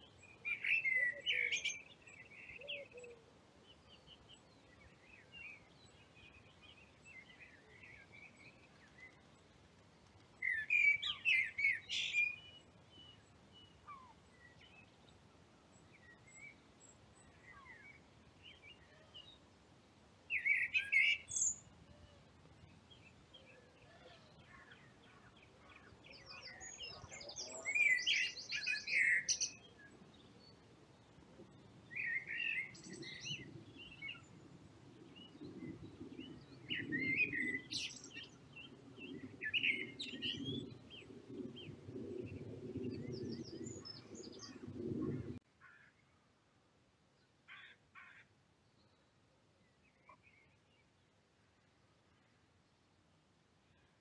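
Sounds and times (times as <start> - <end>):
blackbird singing: 0.1 - 9.1, 10.4 - 14.9, 20.3 - 21.6, 22.9 - 30.3, 31.9 - 34.3, 36.2 - 41.7.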